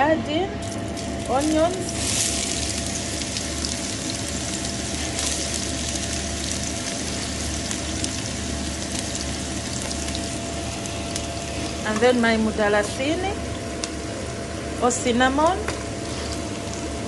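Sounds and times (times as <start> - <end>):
onions sizzling in a pot: 0.9 - 17.0.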